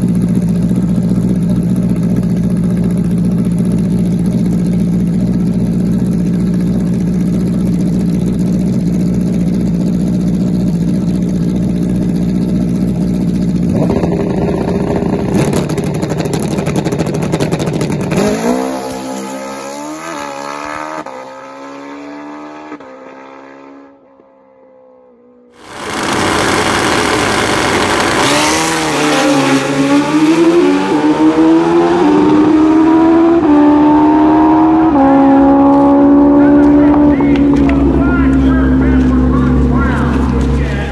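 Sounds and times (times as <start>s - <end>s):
engine crackling: 0.0s - 19.1s, 25.6s - 31.1s, 34.6s - 40.9s
drag bike engine running: 0.0s - 20.2s, 25.6s - 31.1s, 34.8s - 40.9s
motorbike accelerating through gears: 0.0s - 40.9s.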